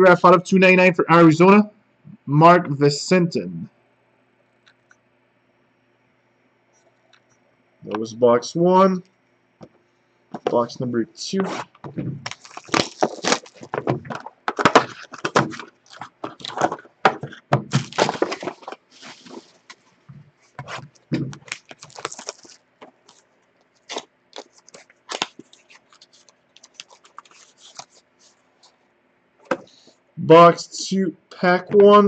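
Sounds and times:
wrapping and cardboard ripping: 0:11.5 - 0:19.8, 0:20.6 - 0:28.4.

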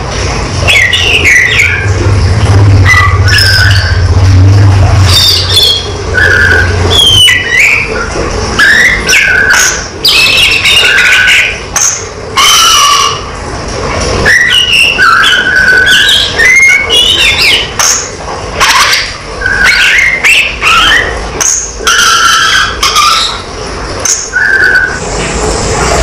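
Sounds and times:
bird singing whistled phrases: 0:02.9 - 0:04.0, 0:05.1 - 0:13.2, 0:14.2 - 0:18.0, 0:18.6 - 0:23.4, 0:24.1 - 0:25.0.

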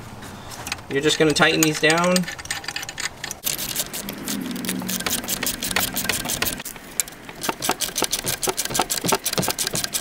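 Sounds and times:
ratchet wrench clicking: 0:04.9 - 0:10.0.

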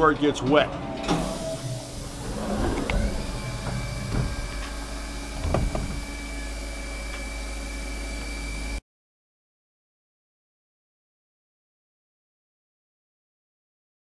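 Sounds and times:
mill spindle whine: 0:00.2 - 0:08.8
machine low hum: 0:00.8 - 0:08.8.

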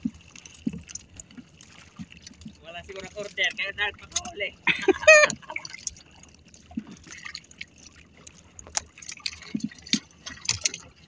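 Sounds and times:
light knocks and splashes: 0:00.0 - 0:11.0
water dripping off fishing line: 0:00.0 - 0:11.0.

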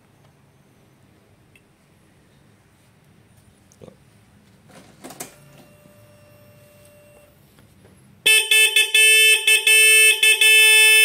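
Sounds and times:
motorcycle horn honking: 0:08.2 - 0:11.0.

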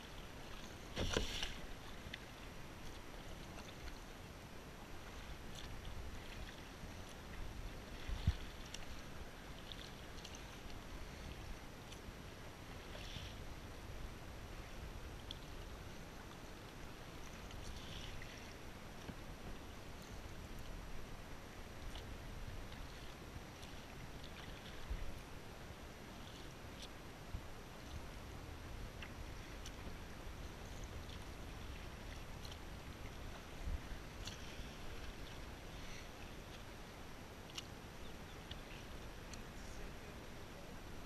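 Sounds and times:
paddle splashing in water: 0:00.0 - 0:04.0, 0:04.8 - 0:12.0, 0:21.4 - 0:27.0, 0:27.8 - 0:40.2.

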